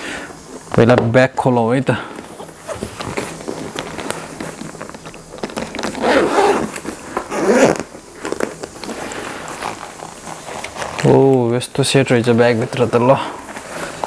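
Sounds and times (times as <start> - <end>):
bag zipper being pulled open: 5.8 - 7.9.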